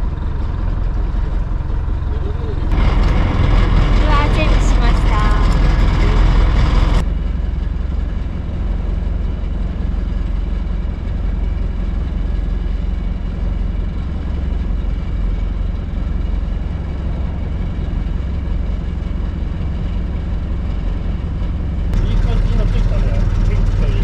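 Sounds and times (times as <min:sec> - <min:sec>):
boat engine humming: 0:00.0 - 0:24.0.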